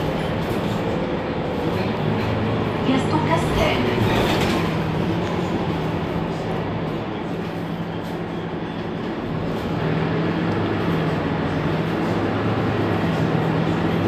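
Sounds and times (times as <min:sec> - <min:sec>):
bus engine idling: 0:00.0 - 0:14.0.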